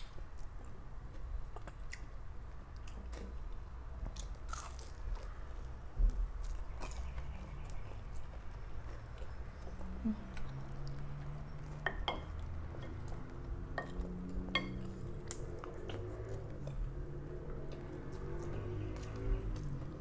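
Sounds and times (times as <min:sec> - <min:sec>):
chewing: 0:06.4 - 0:20.0.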